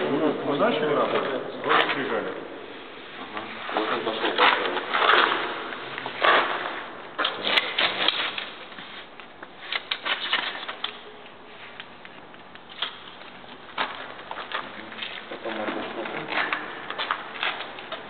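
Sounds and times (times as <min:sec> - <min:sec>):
drywall taper squishing and clicking: 0:03.3 - 0:18.0.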